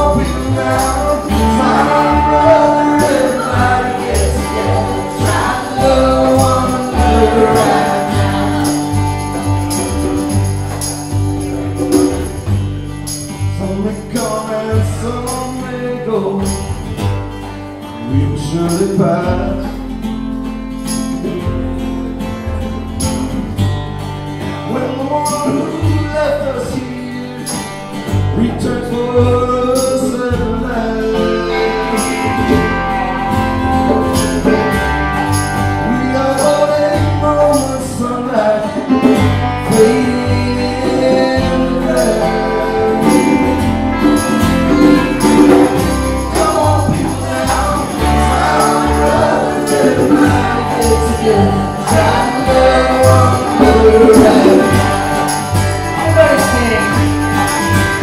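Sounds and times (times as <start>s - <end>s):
man singing lead: 0.0s - 10.0s, 13.4s - 16.8s, 18.0s - 19.8s, 24.7s - 27.0s, 28.3s - 34.8s, 35.7s - 58.0s
steady drum beat: 0.0s - 13.6s, 42.8s - 58.0s
guitar: 0.0s - 58.0s.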